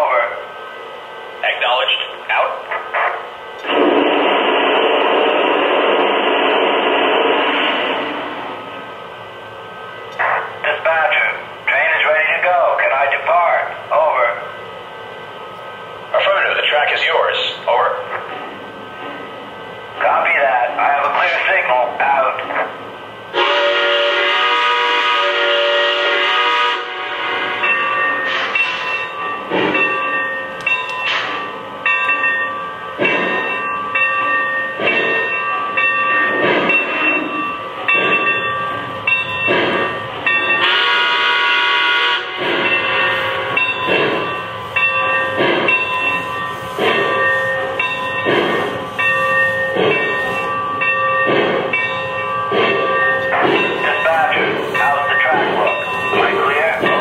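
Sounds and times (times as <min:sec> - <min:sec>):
steam locomotive chuffing: 0:01.3 - 0:32.4, 0:33.0 - 0:57.0
steam whistle blast: 0:03.7 - 0:07.9, 0:23.4 - 0:27.6, 0:40.6 - 0:42.5.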